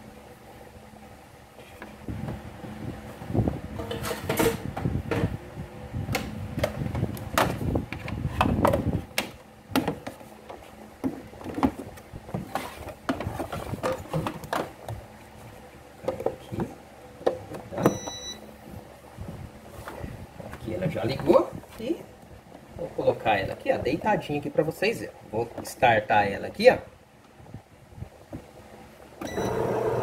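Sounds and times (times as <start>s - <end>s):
short electronic beep: 17.9s - 18.4s.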